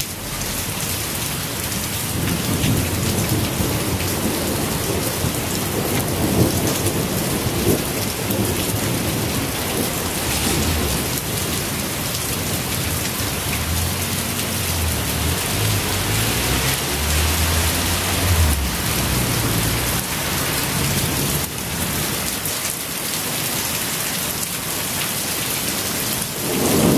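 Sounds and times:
torrential rain on street and trees: 0.0 - 26.9
low rumble: 9.9 - 12.2.

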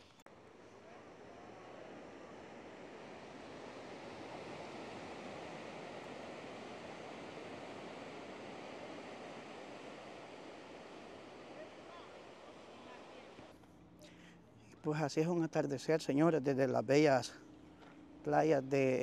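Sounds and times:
ocean surf breaking: 0.0 - 13.5.

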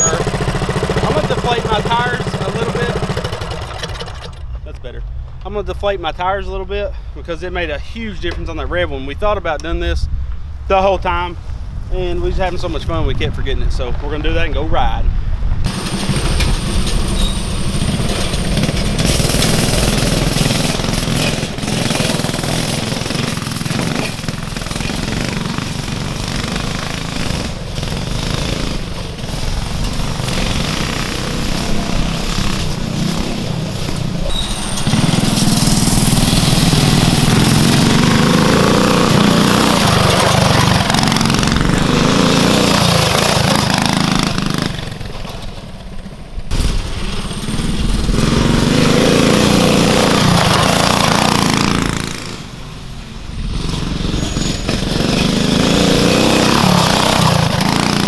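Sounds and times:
mini bike engines running hard: 0.0 - 4.5, 15.7 - 52.5, 53.4 - 58.0.

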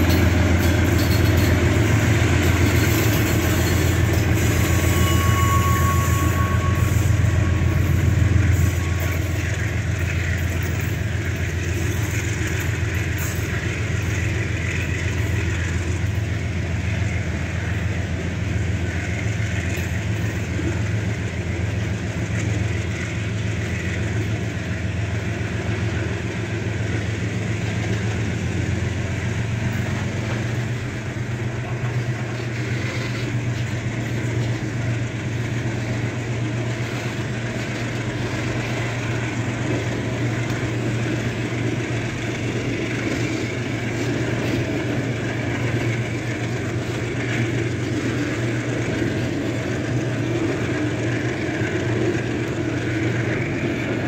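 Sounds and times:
wheel squeal: 0.0 - 10.6, 32.4 - 34.7
diesel locomotive drone: 0.0 - 54.0
train wheels rumbling on rails: 0.0 - 54.0.

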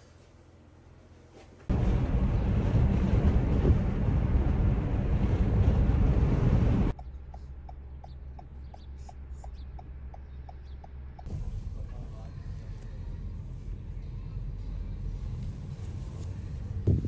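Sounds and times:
low engine hum: 0.2 - 17.0
wind and road noise: 1.7 - 17.0
turn signal ticking: 6.9 - 11.4.

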